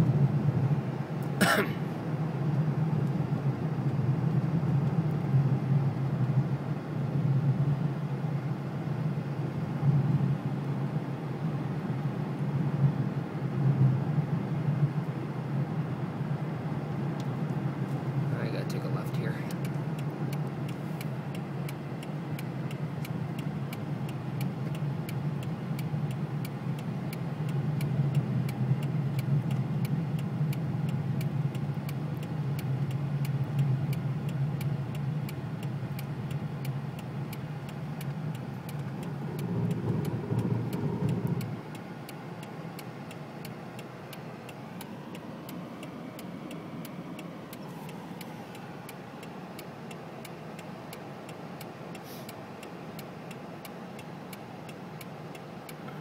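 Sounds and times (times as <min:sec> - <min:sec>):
car engine and road noise: 0:00.0 - 0:56.0
fast regular ticking: 0:18.4 - 0:55.9.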